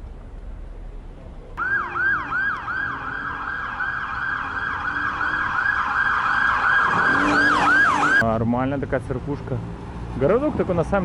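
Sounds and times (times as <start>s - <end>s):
electronic siren yelping: 1.6s - 8.2s.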